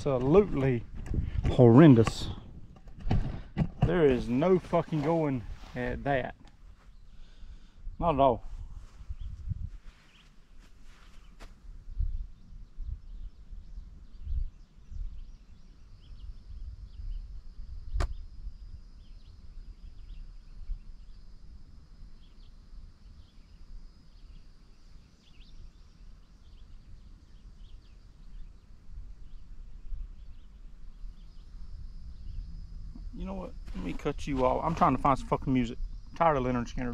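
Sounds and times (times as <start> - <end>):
wind gusting on microphone: 0.0 - 20.9, 28.3 - 36.9
high insect drone: 0.0 - 36.9
sharp click: 18.0 - 18.2.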